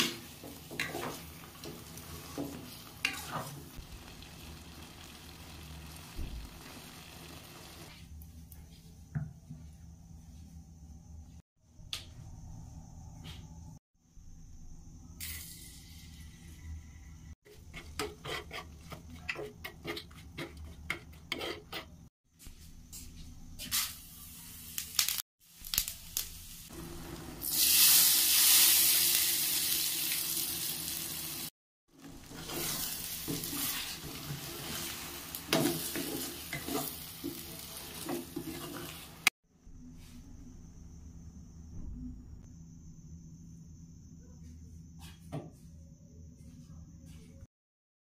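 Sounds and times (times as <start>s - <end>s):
spices crackling in hot oil: 0.0s - 7.9s, 23.6s - 39.3s
loud sizzle: 0.0s - 8.0s, 23.6s - 39.3s
spoon scraping steel bowl: 17.6s - 22.1s.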